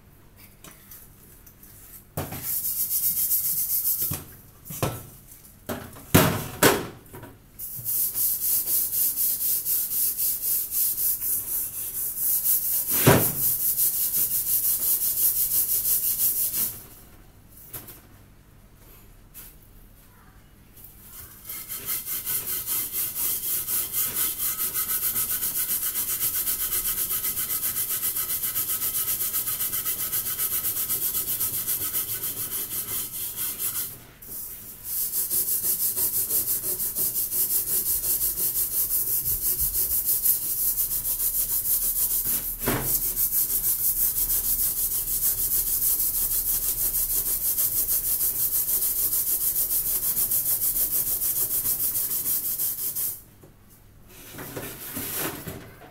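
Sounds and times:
steel wool scrubbing metal pot: 21.2 - 34.0.

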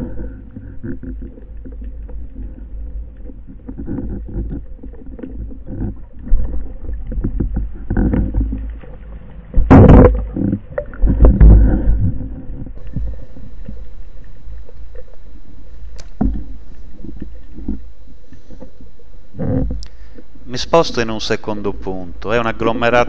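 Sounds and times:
low underwater rumble: 0.0 - 23.0
scattered clicks: 13.6 - 18.8.

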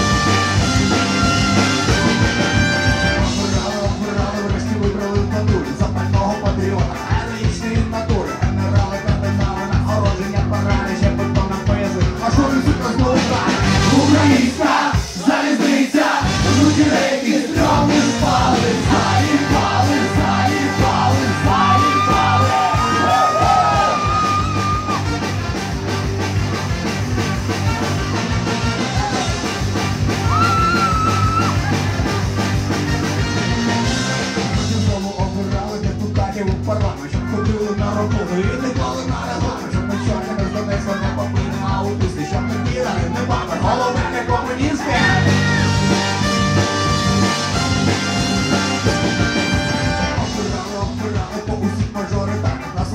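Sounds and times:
trombone: 0.0 - 15.0, 16.0 - 30.3, 31.4 - 35.8, 42.5 - 52.9
bass guitar: 0.0 - 15.2, 16.2 - 52.9
drums: 0.0 - 52.9
keyboard: 0.0 - 52.9
man singing and shouting: 3.1 - 25.1, 28.6 - 29.6, 34.4 - 46.3, 49.8 - 52.9.

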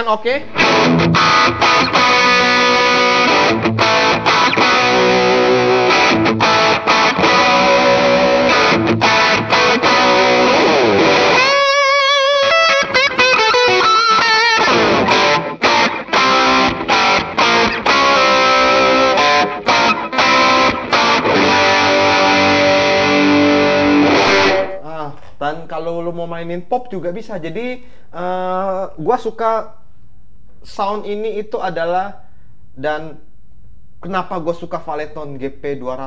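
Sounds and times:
guitar lead with vibrato: 0.4 - 24.8
overdriven electric guitar chords: 0.4 - 24.8.

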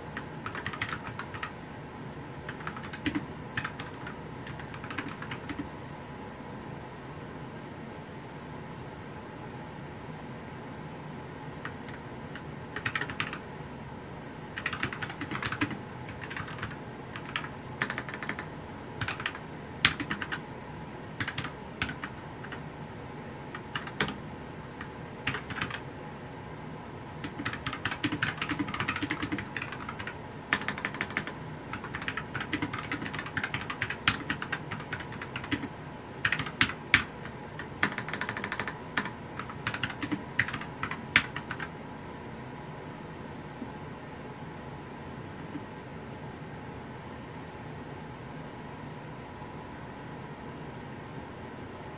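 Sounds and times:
mechanical keyboard typing: 0.2 - 1.5, 2.5 - 5.6, 11.6 - 13.4, 14.6 - 20.4, 21.2 - 22.6, 23.5 - 24.2, 24.8 - 25.8, 27.2 - 41.7.

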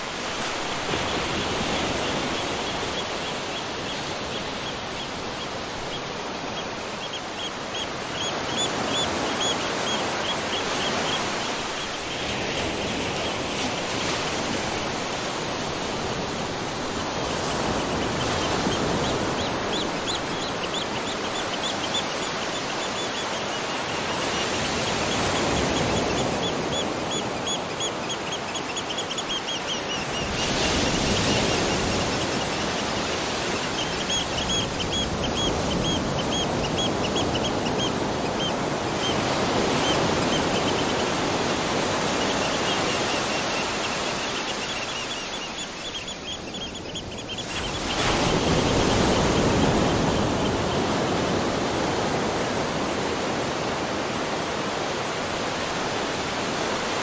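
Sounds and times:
bird chirping: 42.0 - 50.8.

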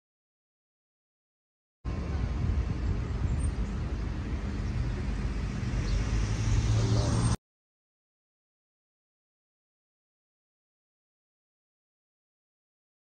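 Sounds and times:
road noise: 1.8 - 7.4
low car rumble: 1.9 - 7.4.

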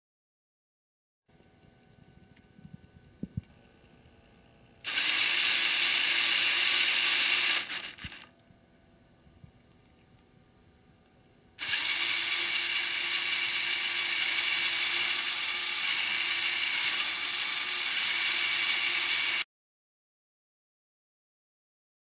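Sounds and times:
motors and gears whirring: 2.7 - 8.4, 11.6 - 19.5.

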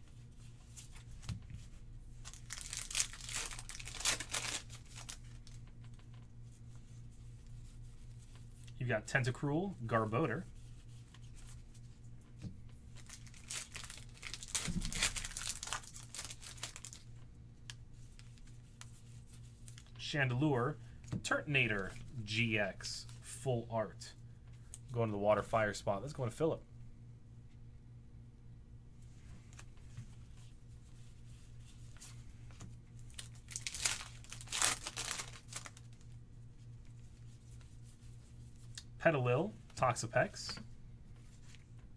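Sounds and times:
foil wrapper tearing and crinkling: 2.3 - 5.6, 13.0 - 17.0, 33.1 - 36.0.

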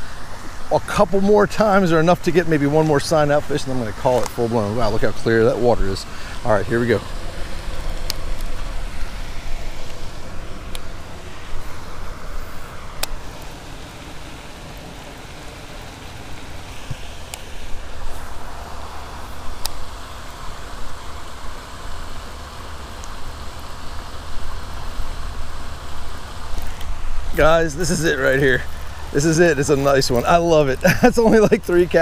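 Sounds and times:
sharp ticks: 1.6 - 9.2, 19.5 - 31.2.

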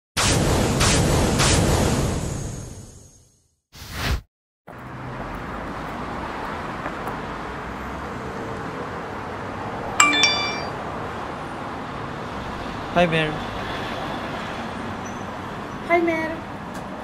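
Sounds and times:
street noise: 4.7 - 17.0
short bright chime: 10.0 - 10.8.

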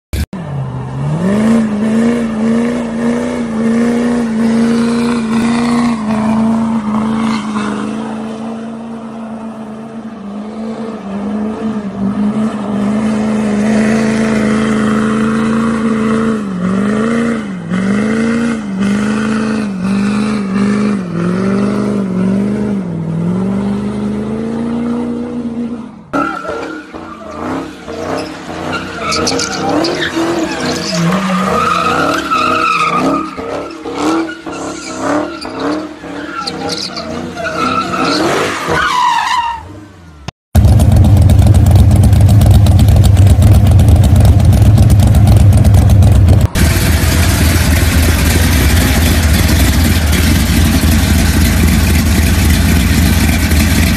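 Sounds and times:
car engine doing donuts: 0.4 - 40.0, 40.6 - 53.9
truck engine revving: 0.5 - 9.1, 10.3 - 38.6, 40.6 - 53.9
tyres squealing: 26.2 - 39.7.

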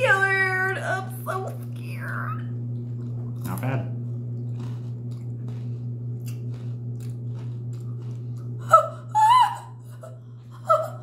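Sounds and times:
woman chewing crunchy snack: 2.8 - 8.9.

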